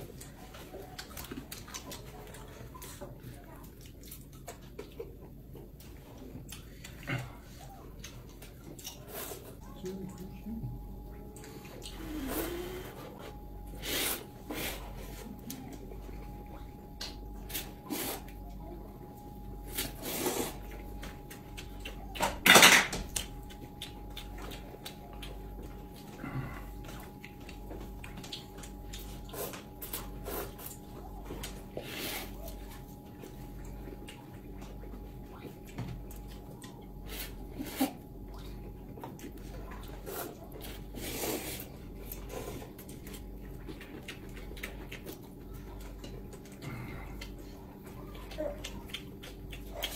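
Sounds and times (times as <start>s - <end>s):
people slurping noodles: 11.8s - 14.9s, 19.8s - 20.6s
wet smacks and clicks: 23.1s - 26.2s, 26.8s - 30.0s, 48.2s - 49.9s.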